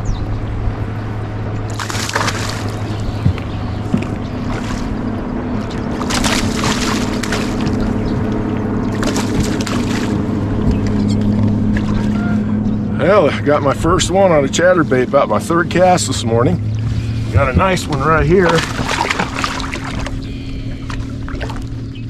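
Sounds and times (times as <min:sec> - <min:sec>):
boat low hum: 0:00.0 - 0:22.0
fish splashing at water surface: 0:01.7 - 0:11.0, 0:11.7 - 0:12.3, 0:16.8 - 0:21.9.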